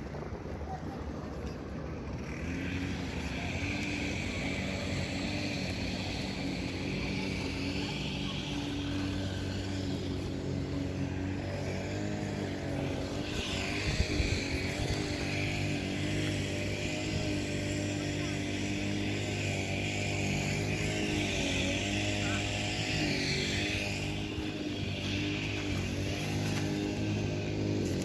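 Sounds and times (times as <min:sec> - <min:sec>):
motor droning: 0:00.0 - 0:28.0.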